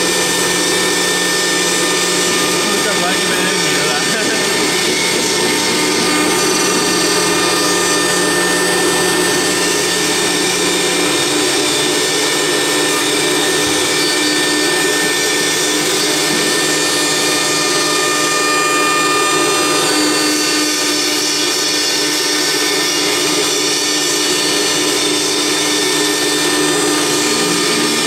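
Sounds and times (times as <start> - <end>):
router spindle whine: 0.0 - 28.0
low hum: 0.4 - 12.0.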